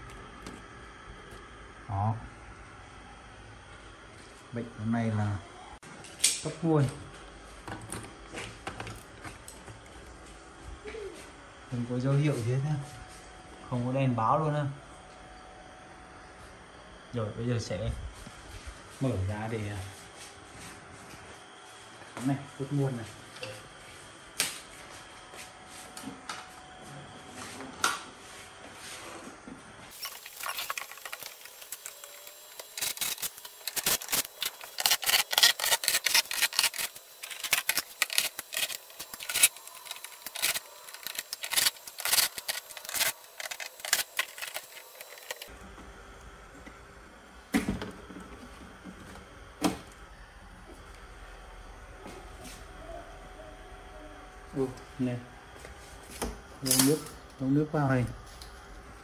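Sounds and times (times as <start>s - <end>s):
screws and plastic rattling: 29.9s - 45.5s.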